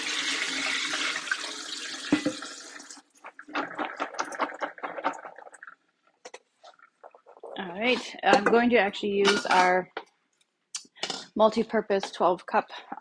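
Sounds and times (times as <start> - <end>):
water splashing into sink: 0.0 - 6.0.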